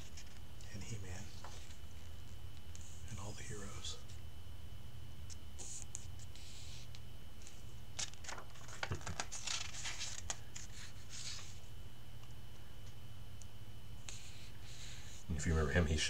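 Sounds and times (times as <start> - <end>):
paper pages rustling: 7.4 - 11.6.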